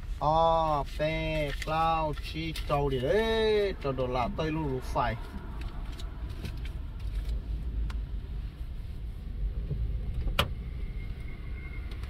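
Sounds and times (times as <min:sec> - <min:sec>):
car cabin rumble: 0:00.0 - 0:12.0.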